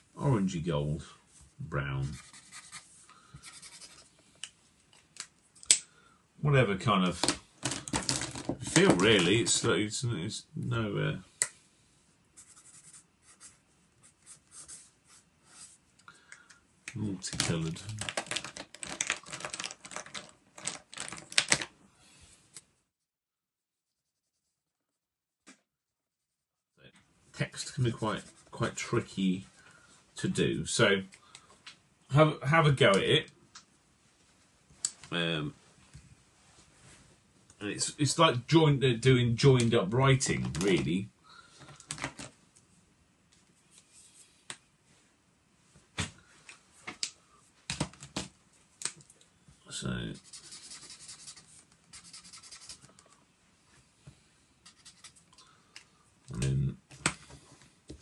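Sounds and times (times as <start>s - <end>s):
plastic pens clattering and clicking: 7.2s - 9.3s, 17.3s - 21.7s.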